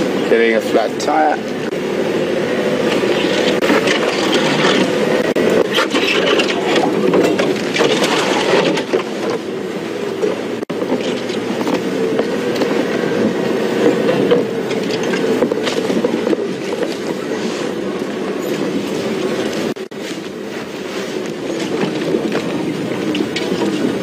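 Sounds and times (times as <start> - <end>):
vehicle engine running: 0.0 - 24.0
grass and branches scraping: 1.6 - 24.0
clicks and rattles: 5.6 - 9.5.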